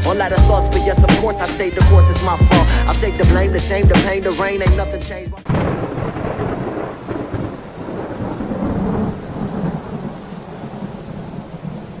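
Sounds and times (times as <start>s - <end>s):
steady rain: 5.5s - 12.0s
thunder rumbling: 5.5s - 12.0s.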